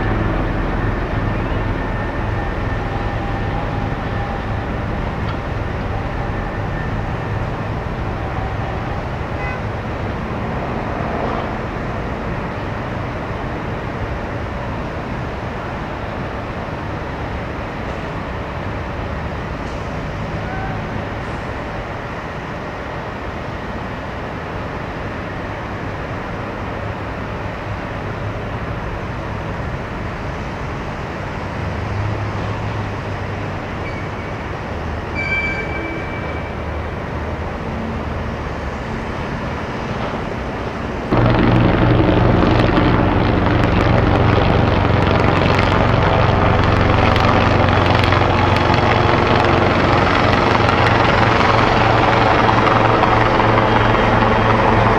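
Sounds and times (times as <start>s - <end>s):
helicopter rotor and engine: 0.0s - 20.3s, 35.6s - 54.9s
city traffic rumble: 0.0s - 54.9s
brief high tone: 35.1s - 36.8s.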